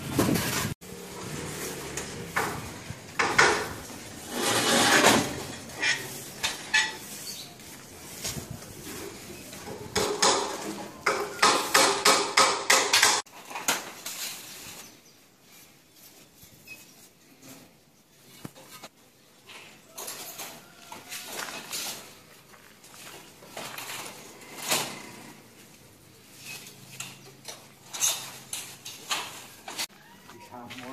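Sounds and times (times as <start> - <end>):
hand tools knocking and clinking: 9.6 - 13.3.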